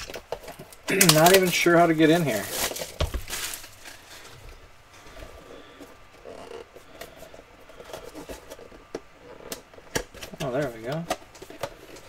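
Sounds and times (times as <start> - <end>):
plastic wrap crinkling: 0.0 - 4.6
cardboard box being handled: 2.1 - 4.1.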